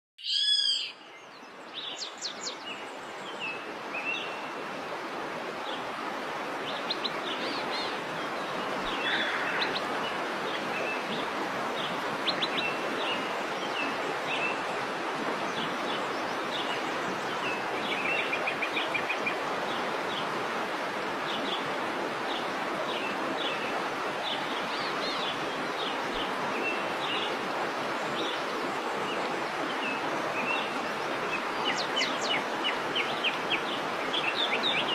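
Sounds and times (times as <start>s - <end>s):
birds chirping and trilling: 0.2s - 4.4s, 6.7s - 11.2s
waterfall rushing: 1.5s - 34.9s.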